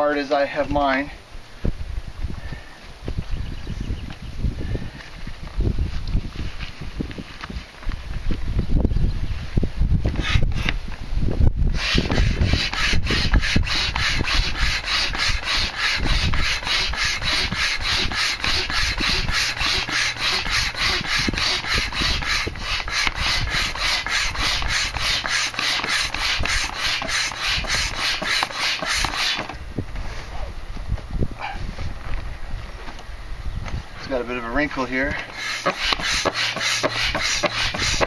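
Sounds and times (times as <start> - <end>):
hand pump rasping: 11.7 - 29.6, 35.1 - 38.0.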